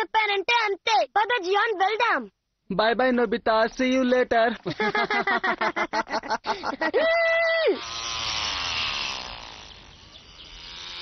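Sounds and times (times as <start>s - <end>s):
toy plane motor whine: 7.6s - 11.0s.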